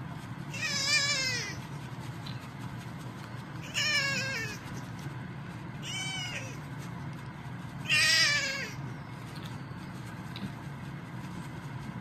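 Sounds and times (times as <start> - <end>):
kitten mewing: 0.5 - 1.6, 3.6 - 4.8, 5.8 - 6.6, 7.8 - 8.8.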